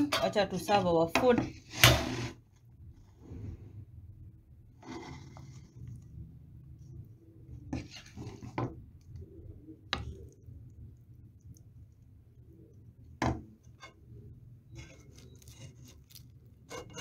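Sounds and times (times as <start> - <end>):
serving spoon scraping a plate: 4.8 - 5.7, 14.7 - 17.0.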